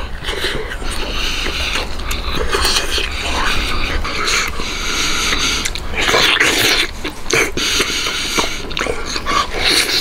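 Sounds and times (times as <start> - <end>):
person chewing food: 0.0 - 10.0
mouth clicks: 5.2 - 10.0.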